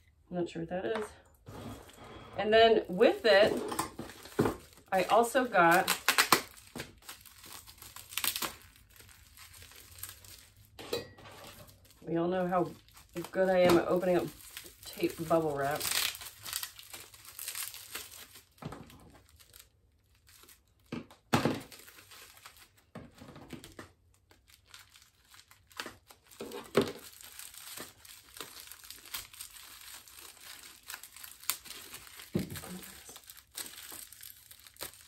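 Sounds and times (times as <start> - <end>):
bubble wrap crinkling and tearing: 2.9 - 10.8, 11.4 - 35.0.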